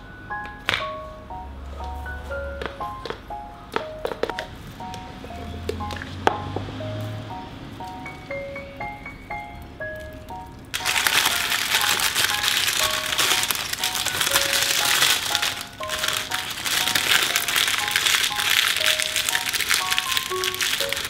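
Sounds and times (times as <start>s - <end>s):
soft plucked background music: 0.0s - 21.0s
parchment paper crinkling: 10.8s - 21.0s.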